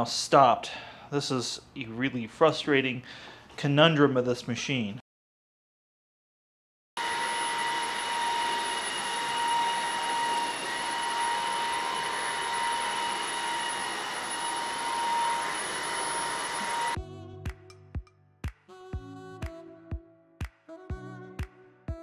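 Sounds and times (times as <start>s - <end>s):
floor scrubber motor whine: 7.0s - 17.0s.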